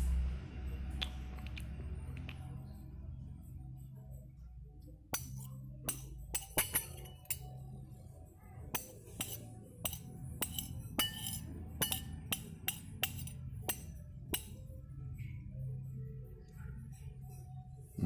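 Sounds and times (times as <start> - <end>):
spoons clinking on ceramic bowls: 5.1 - 7.9, 8.7 - 14.8.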